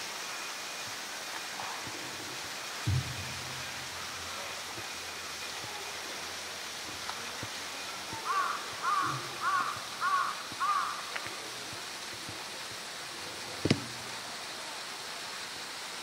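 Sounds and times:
steady background hiss: 0.0 - 16.0
crow cawing: 8.2 - 11.2.

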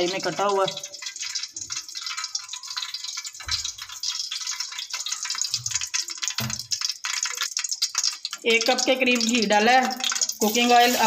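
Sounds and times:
oil crackling sizzle: 0.0 - 11.0.

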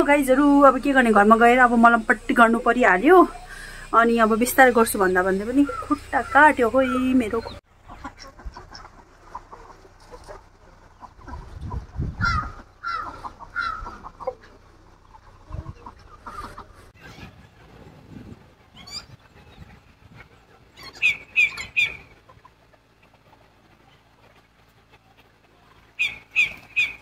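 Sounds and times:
fowl clucking: 4.7 - 17.7, 18.8 - 27.0
high squawks: 12.2 - 14.7.

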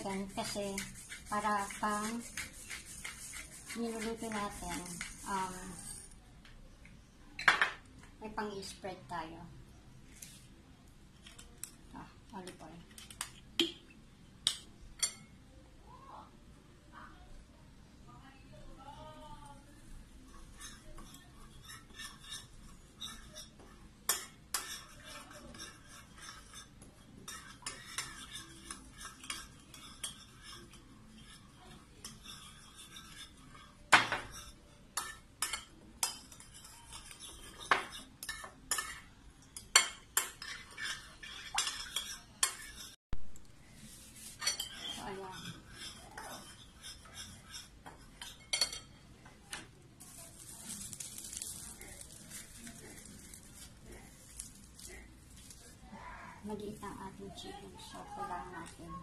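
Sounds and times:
spoon scraping ceramic bowl: 0.0 - 6.2, 20.2 - 43.0, 43.9 - 49.0.

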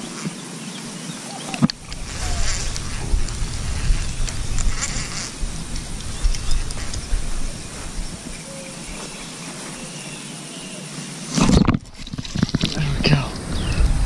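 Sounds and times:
wind buffeting microphone: 1.5 - 9.8, 11.5 - 14.0.

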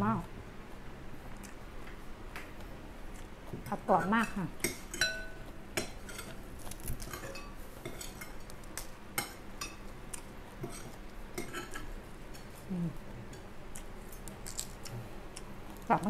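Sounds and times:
cutlery clinking on plates: 4.6 - 6.4, 7.0 - 8.4, 10.6 - 12.5.

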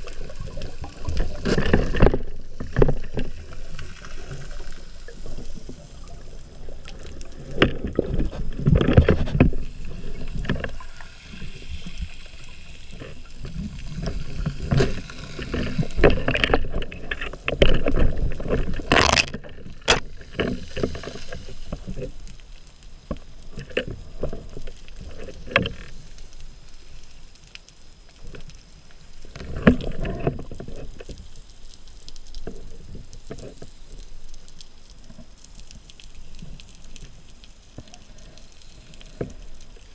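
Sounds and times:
underwater water rushing: 0.0 - 27.4.

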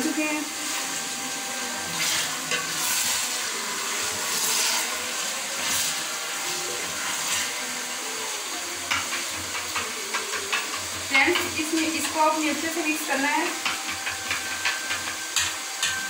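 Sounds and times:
food sizzling in a pot: 0.0 - 16.0.

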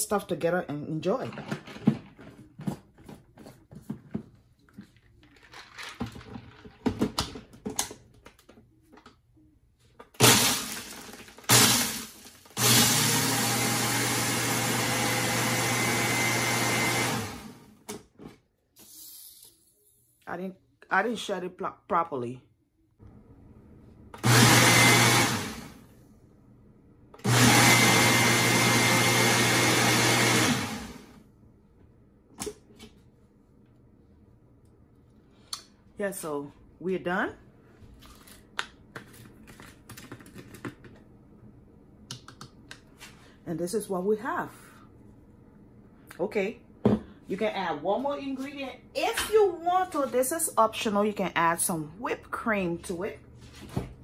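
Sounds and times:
blender chopping ice: 10.2 - 17.6, 24.2 - 25.7, 27.2 - 31.1.

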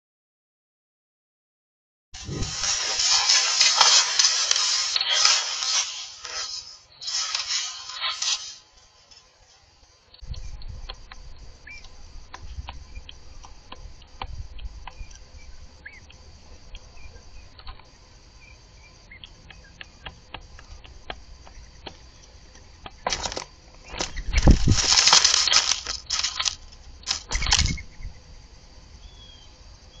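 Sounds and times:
doves pecking at seed: 10.2 - 27.9
dove wings flapping: 23.0 - 27.8.

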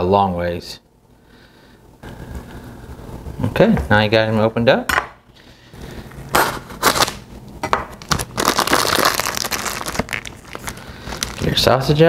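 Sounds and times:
plastic wrapper crinkling and tearing: 6.7 - 7.2, 7.9 - 11.9.

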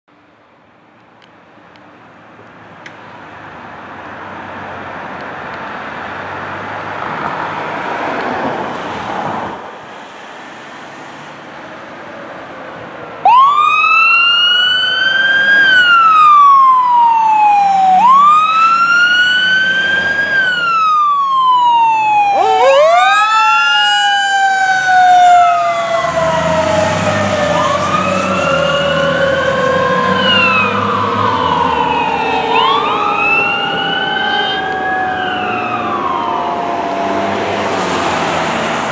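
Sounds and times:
road and engine noise: 0.1 - 38.9
siren wailing up and down: 13.2 - 38.3.

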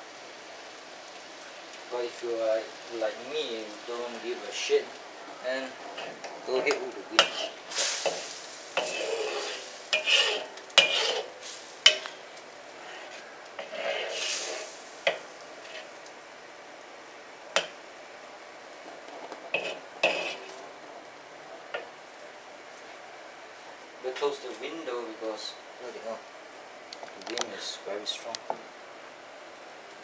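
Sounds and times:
sauce sizzling: 0.0 - 30.0
metal spatula scraping wok: 5.8 - 16.0, 19.5 - 20.6.

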